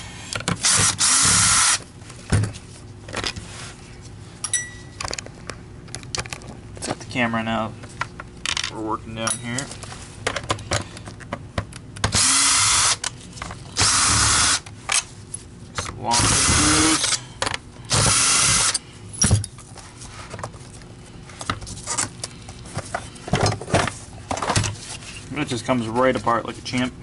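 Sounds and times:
cordless drill spinning: 0.6s - 1.8s, 12.1s - 13.0s, 13.8s - 14.6s, 16.1s - 17.0s, 17.9s - 18.8s.

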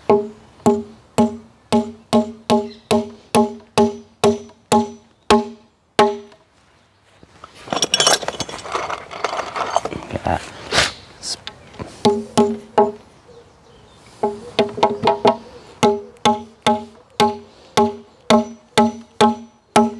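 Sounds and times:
rustling: 6.4s - 11.0s
metallic clinking: 7.5s - 10.0s.

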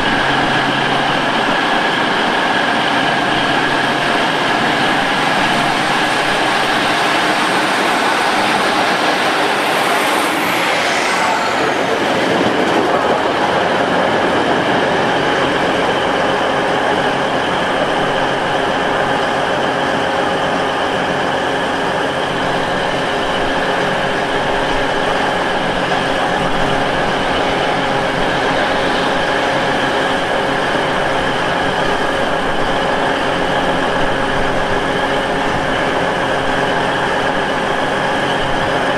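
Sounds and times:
train diesel engines running: 0.0s - 38.9s
high squeal: 3.2s - 14.4s.

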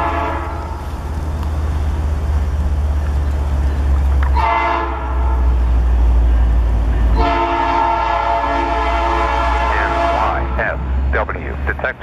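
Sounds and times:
locomotive air horn blasts: 0.0s - 0.8s, 4.3s - 5.6s, 7.1s - 10.8s
low engine rumble: 0.0s - 12.0s.

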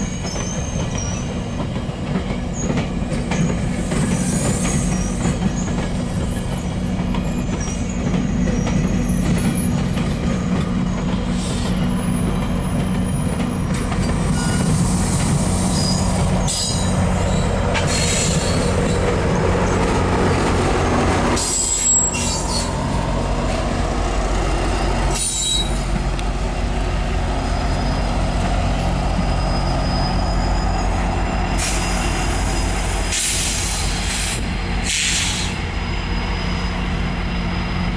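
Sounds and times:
high-pitched wheel squeal: 0.0s - 1.4s, 14.3s - 19.8s, 20.8s - 23.5s, 24.6s - 25.9s, 27.4s - 34.0s, 35.0s - 37.9s
diesel locomotive engine drone: 0.0s - 37.9s
train wheels rumbling on rail: 0.0s - 37.9s.

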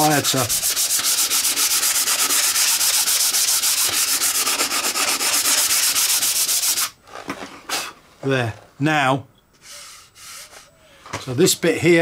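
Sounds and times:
foam sanding block scratching: 0.0s - 7.0s, 9.6s - 10.7s.

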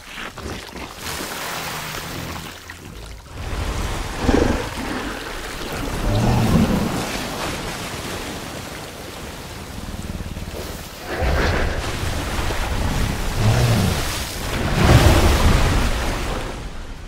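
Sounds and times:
rain and water ambience: 0.0s - 17.0s
giant ape growling: 4.2s - 7.1s, 13.0s - 14.3s.

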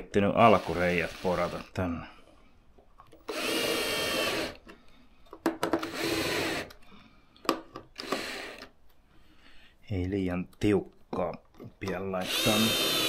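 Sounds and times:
drill-driver driving screws: 0.4s - 1.6s, 3.2s - 4.7s, 5.8s - 6.8s, 8.0s - 8.7s, 12.2s - 13.0s.

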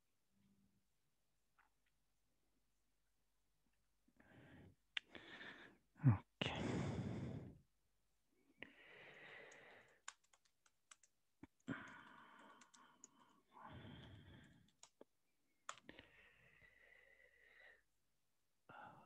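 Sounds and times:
faint irregular clicking: 8.9s - 16.0s.

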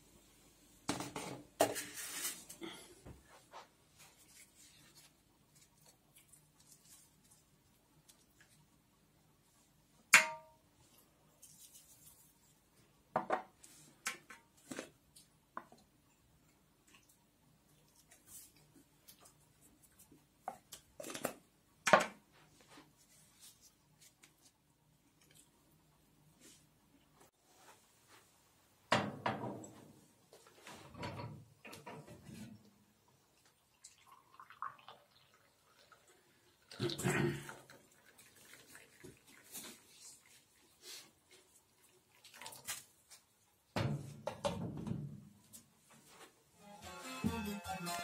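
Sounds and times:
potato skin crackling and rustling: 4.0s - 8.6s.

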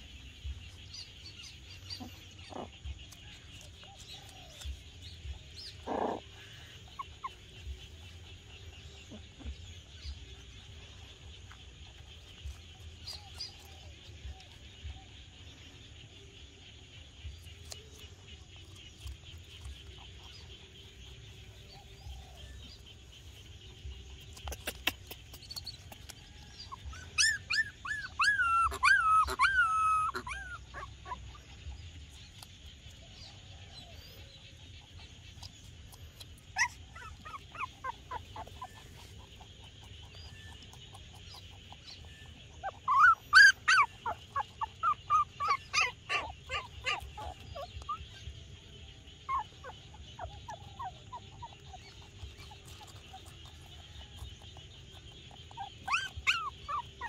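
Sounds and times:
puppies whimpering: 3.6s - 10.8s, 23.9s - 31.8s, 35.0s - 57.0s.

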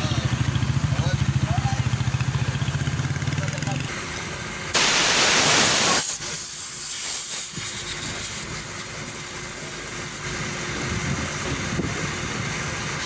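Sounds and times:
tyre inflating hiss: 4.0s - 10.2s
air hose hissing: 4.7s - 10.2s.

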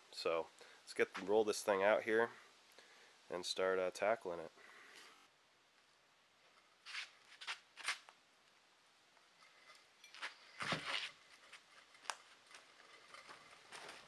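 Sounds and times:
footsteps: 1.0s - 1.4s, 9.6s - 14.0s
metal axle scraping on concrete: 9.4s - 14.0s.

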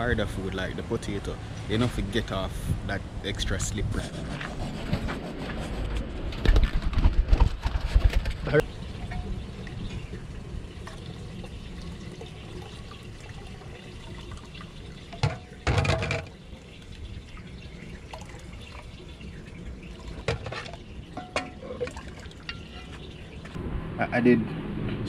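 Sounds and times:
liquid pouring into a pot: 8.7s - 23.0s.

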